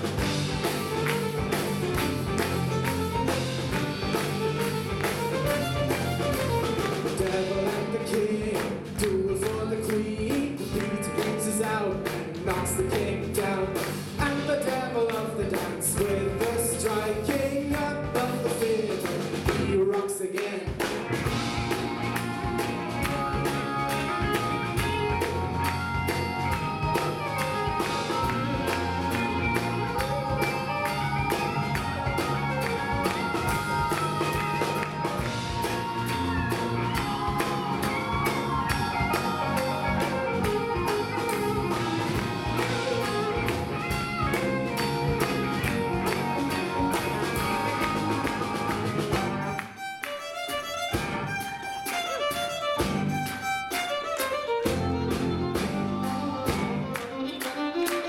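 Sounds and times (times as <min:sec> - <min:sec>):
fiddle: 0:00.0 - 0:07.8, 0:21.2 - 0:58.0
live band playing: 0:00.0 - 0:58.0.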